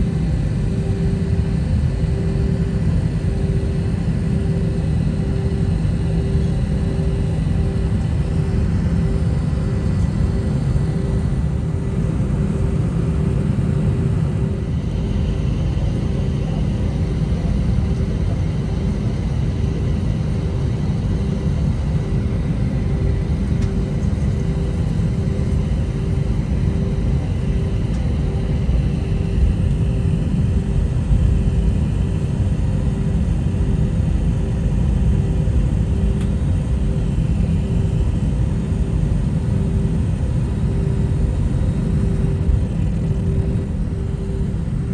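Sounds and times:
jet engines rumbling: 0.0s - 19.2s, 35.7s - 44.9s
faint pulsing hum: 0.0s - 44.9s.

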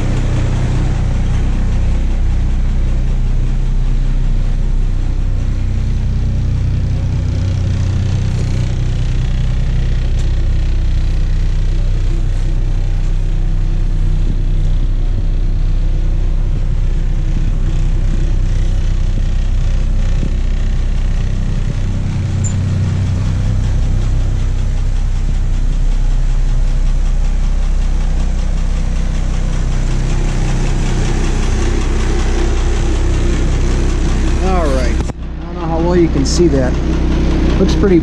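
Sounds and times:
diesel bus engine idling: 0.0s - 38.0s.

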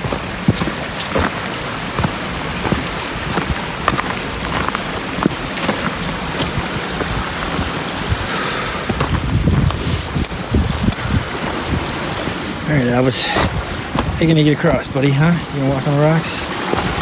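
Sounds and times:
footsteps crunching dry leaves: 0.0s - 8.2s
creek water rushing: 0.0s - 17.0s.

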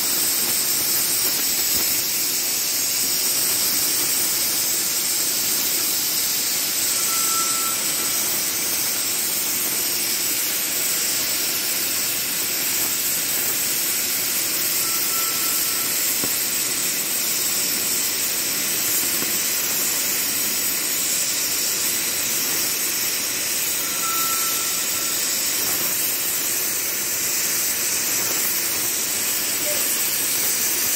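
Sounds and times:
cutting torch hissing: 0.0s - 30.9s
short high tone: 6.9s - 8.6s, 14.8s - 16.0s, 23.8s - 25.3s.

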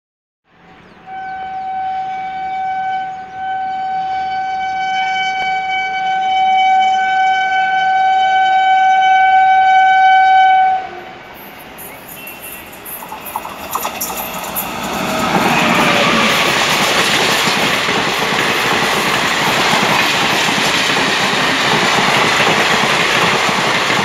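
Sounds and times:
train horn long blast: 1.0s - 12.6s, 14.6s - 16.6s.

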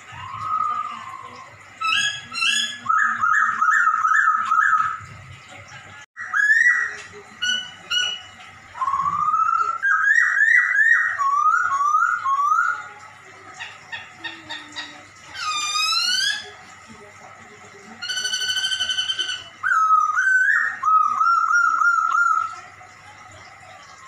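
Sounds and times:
high thin bird chirps: 15.3s - 16.5s.

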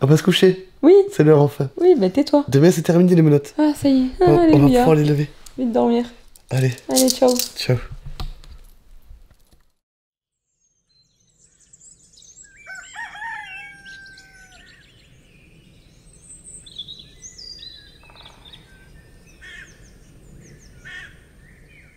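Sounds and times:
birds chirping: 0.0s - 7.8s, 10.7s - 21.9s
rooster crowing: 12.6s - 14.9s.

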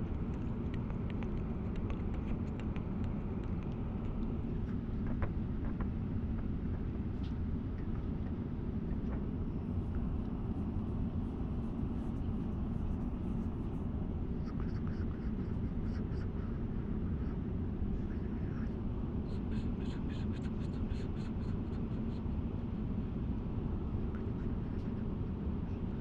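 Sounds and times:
airliner cabin rumble: 0.0s - 20.2s
faint small clicks: 0.1s - 5.9s.

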